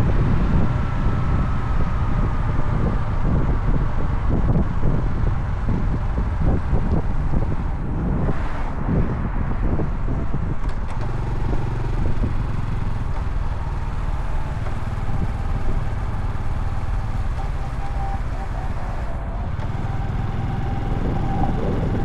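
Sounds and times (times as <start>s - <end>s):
wind buffeting microphone: 0.0s - 22.0s
motorcycle engine running: 10.9s - 22.0s.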